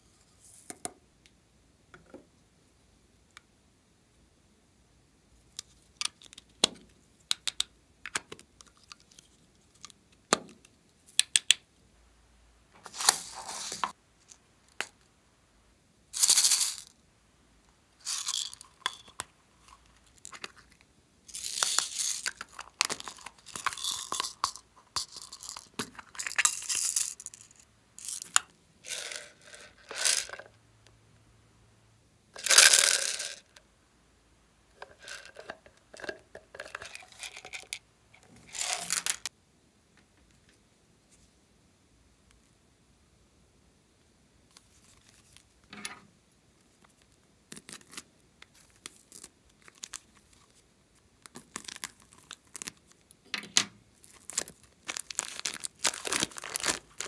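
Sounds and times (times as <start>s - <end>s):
beads rattling out of containers: 12.9s - 13.9s, 16.2s - 16.9s, 18.0s - 19.2s, 21.3s - 30.5s, 32.4s - 33.5s, 38.5s - 39.3s, 54.0s - 57.0s.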